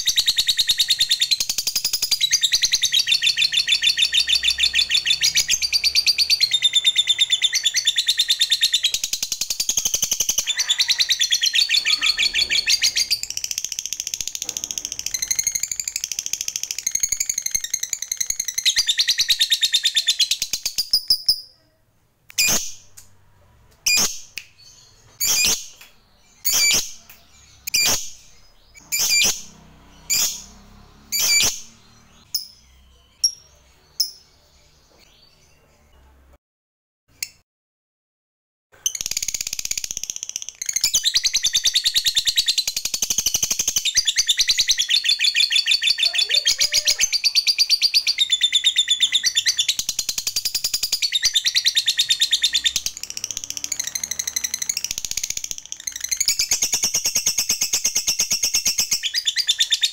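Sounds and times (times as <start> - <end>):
bird high chattering trill: 0.0 - 21.7, 43.1 - 59.9
bird sharp chirps: 0.0 - 23.1, 23.8 - 36.1, 38.8 - 59.9.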